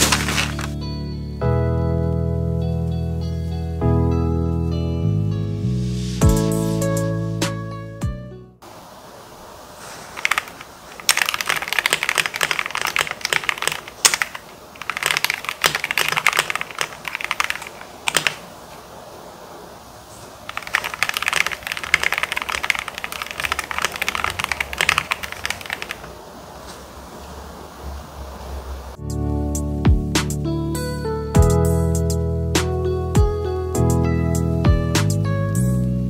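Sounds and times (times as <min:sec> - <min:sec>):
mechanical keyboard typing: 0:00.0 - 0:00.7, 0:10.2 - 0:18.5, 0:20.5 - 0:26.2.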